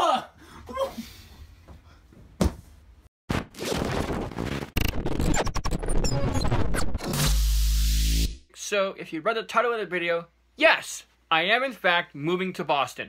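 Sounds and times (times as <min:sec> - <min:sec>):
noisy rush with sharp hits: 0:03.3 - 0:08.4.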